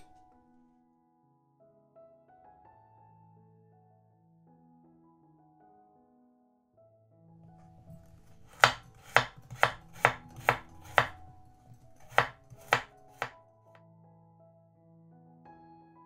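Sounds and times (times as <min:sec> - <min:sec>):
knife chopping carrot on board: 0:08.0 - 0:13.4.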